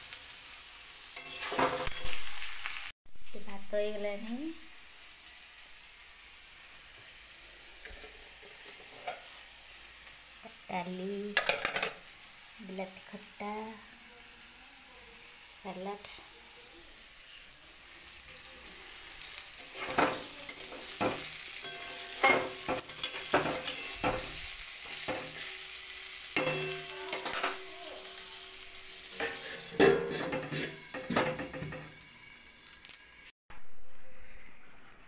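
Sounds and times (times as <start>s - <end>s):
chicken sizzling in a pan: 0.0s - 33.4s
spoon scraping a pan: 1.1s - 2.5s, 7.5s - 9.5s, 19.0s - 28.0s, 29.1s - 32.0s
metal plate clanking on pan: 11.4s - 12.0s, 19.8s - 25.5s, 26.4s - 27.7s, 29.2s - 32.0s.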